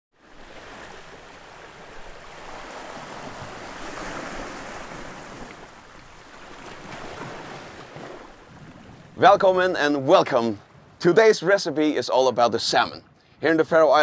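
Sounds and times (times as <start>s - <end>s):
sea water washing on rocks: 0.4s - 9.4s.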